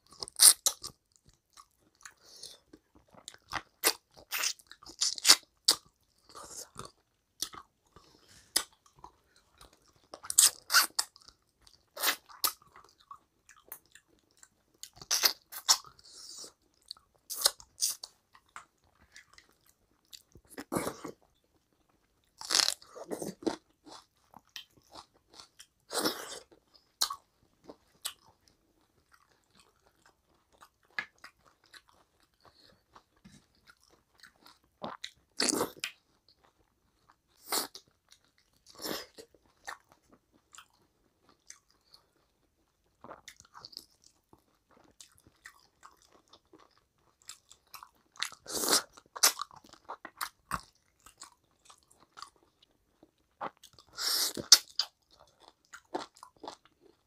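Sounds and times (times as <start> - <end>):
person chewing with wet mouth smacks: 0.0 - 57.0.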